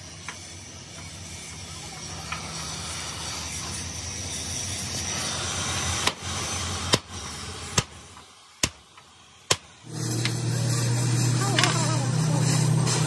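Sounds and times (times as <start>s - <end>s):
steady machine hum: 9.4s - 13.0s.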